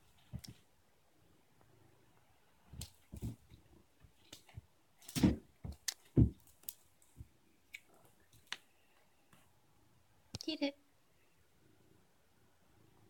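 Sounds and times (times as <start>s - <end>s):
cat thumping on carpet: 2.7s - 3.6s, 5.1s - 6.5s.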